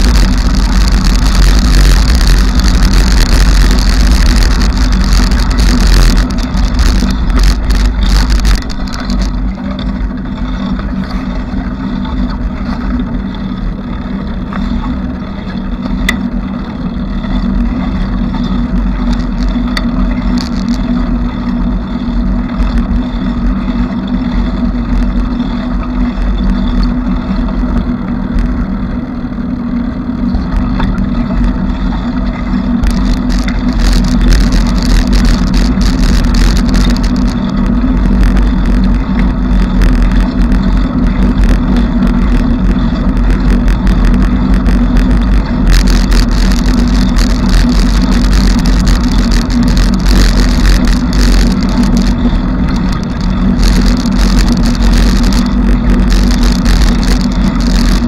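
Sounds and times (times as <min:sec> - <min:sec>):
bicycle riding rumble: 0:00.0 - 0:58.0.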